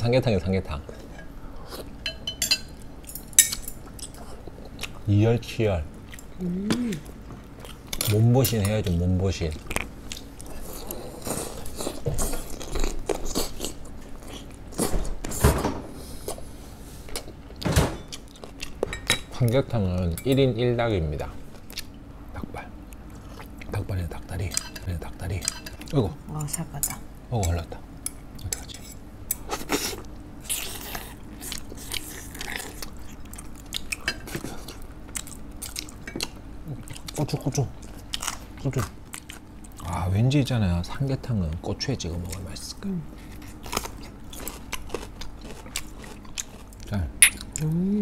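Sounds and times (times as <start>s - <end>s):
person chewing and sucking: 43.3s - 47.7s.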